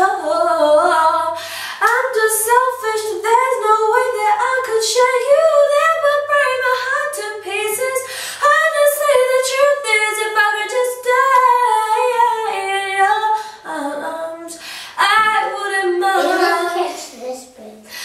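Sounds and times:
girl singing solo: 15.0s - 17.1s.

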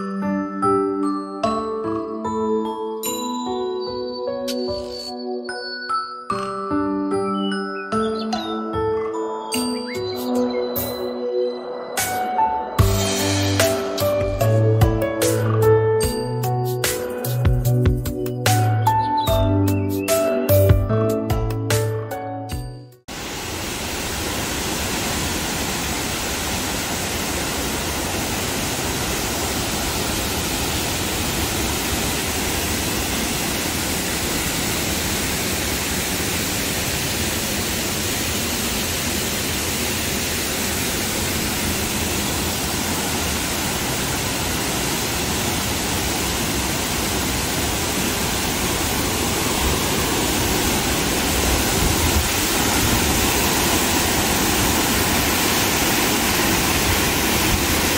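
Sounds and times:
waterfall rushing: 23.1s - 57.9s.

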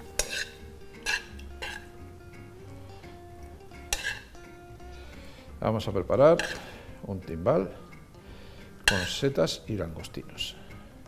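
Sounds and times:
metal spoon scraping frying pan: 0.0s - 2.0s, 3.9s - 4.4s, 6.3s - 6.8s, 8.8s - 9.3s
background music: 0.0s - 11.0s.

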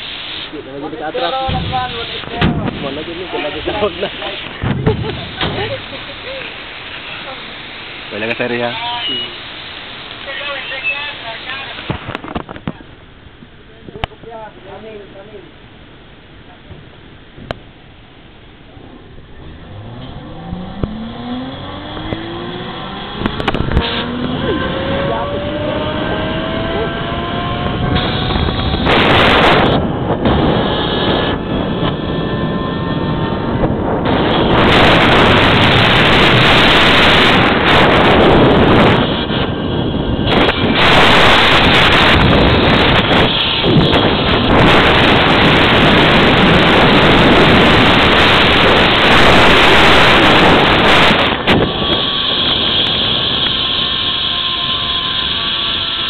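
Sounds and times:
zipline pulleys whining: 18.8s - 28.9s, 30.5s - 36.1s, 36.9s - 56.0s
wind buffeting microphone: 19.0s - 56.0s.

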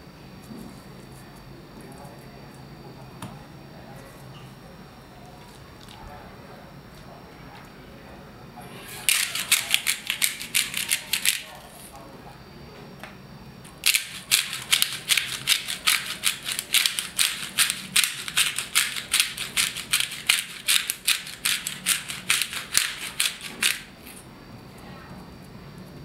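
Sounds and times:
pepper grinder dry rattle: 9.0s - 11.6s, 13.8s - 24.2s.

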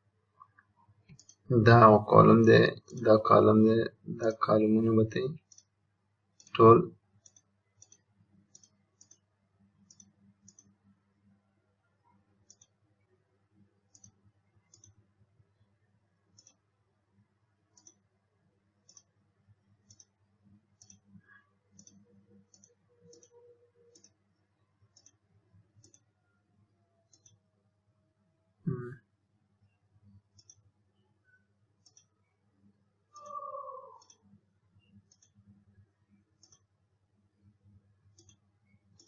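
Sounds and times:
faint low hum: 0.0s - 39.0s
computer mouse clicking: 1.0s - 1.5s, 5.4s - 5.8s, 7.2s - 10.9s, 12.4s - 12.8s, 13.8s - 15.0s, 16.3s - 16.7s, 17.7s - 18.1s, 18.8s - 19.2s, 19.8s - 26.1s, 27.0s - 27.4s, 30.2s - 30.7s, 31.3s - 32.1s, 33.1s - 36.8s, 38.1s - 39.0s.

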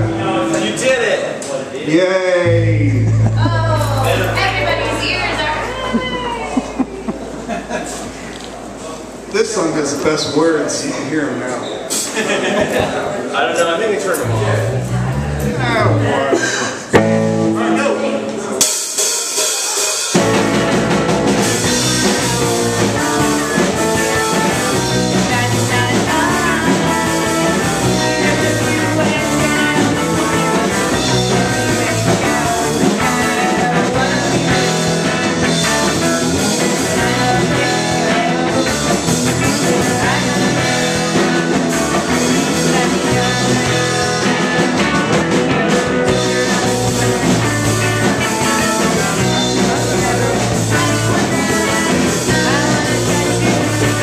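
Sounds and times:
electric bass: 0.0s - 1.1s, 2.1s - 10.8s, 14.1s - 18.3s, 20.2s - 54.0s
drum kit with cymbals: 18.4s - 54.0s
woman singing: 24.0s - 38.8s, 39.4s - 41.3s, 42.1s - 44.7s, 48.2s - 54.0s.

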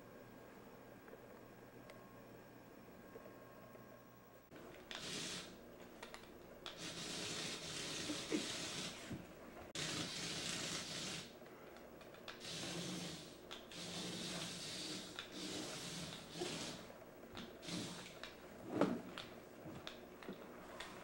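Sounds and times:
toy truck motor whirring: 6.7s - 9.2s, 9.8s - 11.3s, 12.3s - 16.9s.

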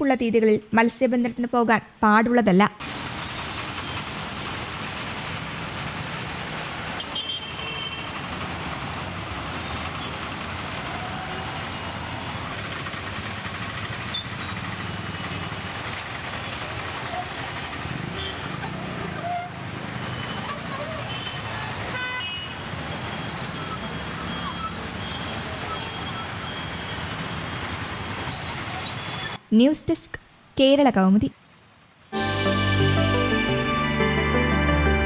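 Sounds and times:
rain and wet tyres hissing: 2.8s - 29.4s
vehicle engines running: 7.9s - 22.0s.

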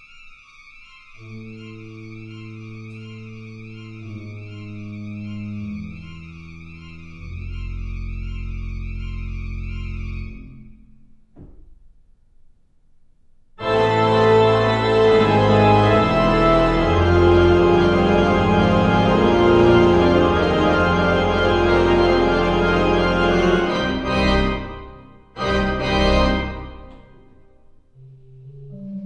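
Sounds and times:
orchestral score music: 1.2s - 10.9s, 13.6s - 29.0s.

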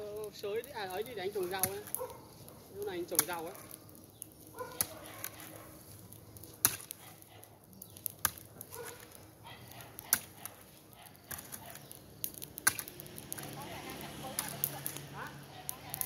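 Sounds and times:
hoe chopping into dry soil: 1.4s - 2.2s, 4.6s - 5.5s, 6.5s - 7.2s, 8.0s - 13.6s.

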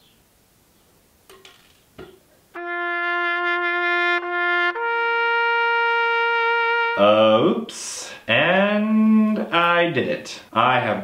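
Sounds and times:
trumpet-like brass notes: 2.6s - 7.5s.

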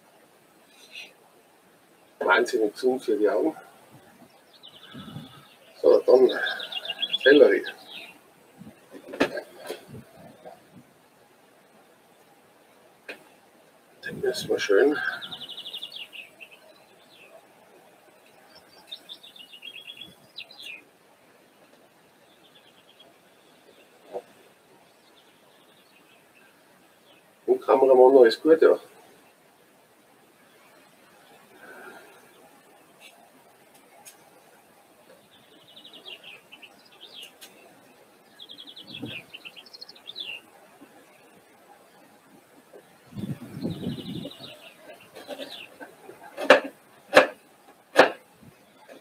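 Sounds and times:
small songbird singing: 0.6s - 1.2s, 3.3s - 10.8s, 14.0s - 27.4s, 33.9s - 42.1s, 42.7s - 46.4s.

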